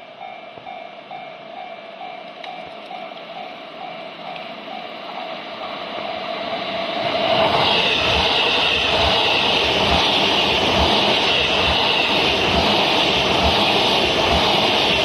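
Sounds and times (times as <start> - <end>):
train wheels on rails: 0.0 - 15.0.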